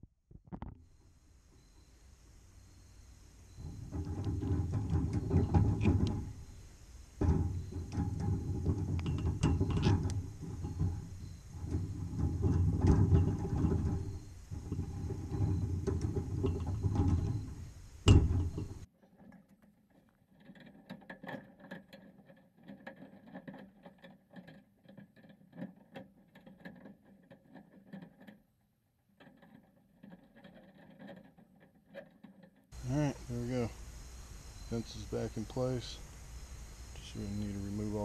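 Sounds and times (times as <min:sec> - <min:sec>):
crickets chirring: 0:00.6 - 0:18.9, 0:32.7 - 0:38.0
low rumbling handling noise: 0:02.6 - 0:18.9
chain-link wire clicks and rattles: 0:07.2 - 0:28.4, 0:29.2 - 0:32.7.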